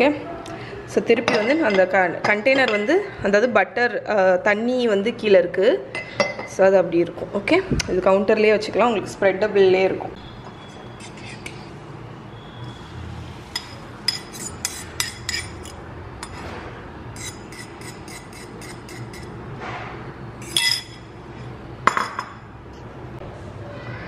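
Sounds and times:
ceramic bowl and utensils clinking: 13.6 - 16.4, 20.4 - 21.1.

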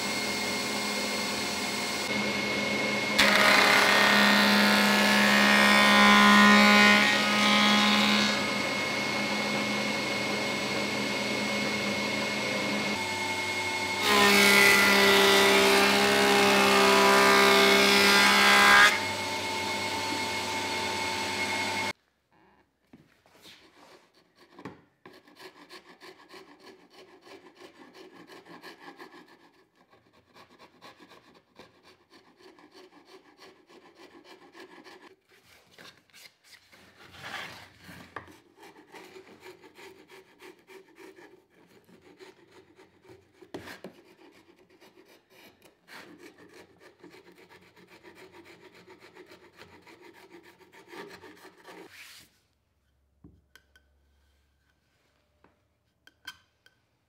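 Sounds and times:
planer running: 0.0 - 21.9
hand tool scraping wood: 23.4 - 35.4, 37.0 - 52.4.

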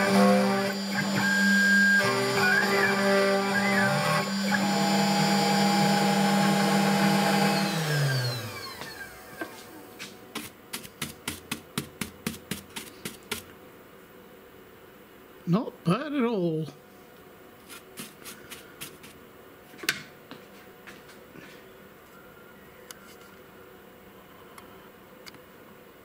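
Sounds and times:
cnc router spindle whine: 0.0 - 9.7.

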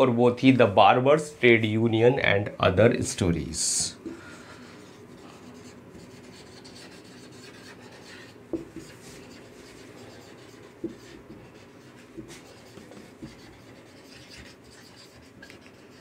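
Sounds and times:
marker scraping on whiteboard: 4.8 - 16.0.

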